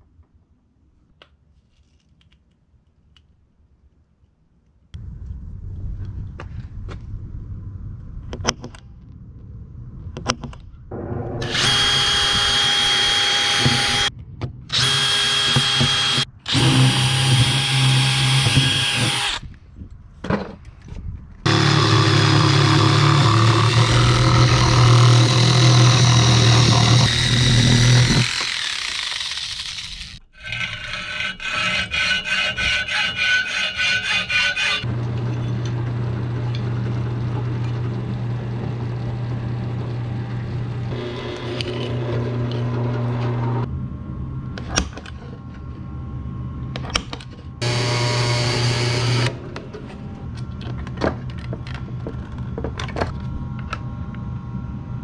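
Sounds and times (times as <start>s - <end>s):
drill press humming: 10.9s - 14.1s, 21.5s - 43.7s, 47.6s - 50.4s
electric drill whining through metal: 11.4s - 14.1s, 14.7s - 19.5s, 21.5s - 35.8s, 47.6s - 49.4s.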